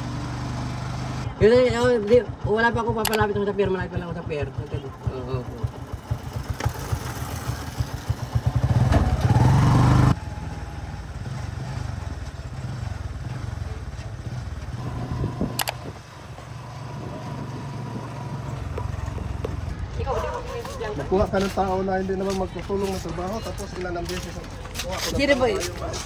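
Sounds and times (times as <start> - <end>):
steady engine hum: 0.0 - 23.7
small engine revving: 6.4 - 13.6, 14.7 - 19.5
sharp click: 15.5 - 15.8.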